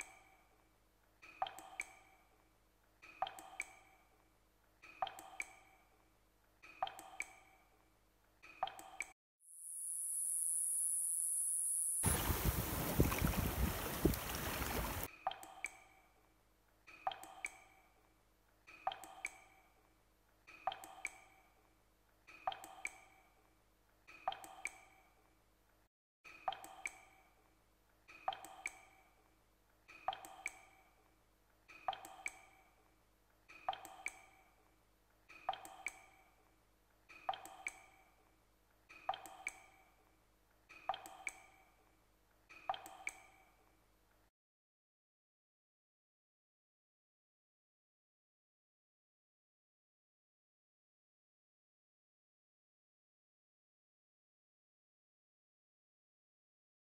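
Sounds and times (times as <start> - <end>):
water drops plinking: 1.2 - 2.2, 3.1 - 4.0, 4.9 - 5.7, 6.7 - 7.5, 8.5 - 9.1, 12.0 - 15.8, 16.9 - 17.8, 18.8 - 19.6, 20.5 - 21.3, 22.4 - 23.1, 24.2 - 25.0, 26.4 - 27.2, 28.2 - 29.0, 30.0 - 30.7, 31.8 - 32.6, 33.6 - 34.4, 35.4 - 36.2, 37.2 - 38.0, 39.0 - 39.8, 40.8 - 41.6, 42.6 - 43.4.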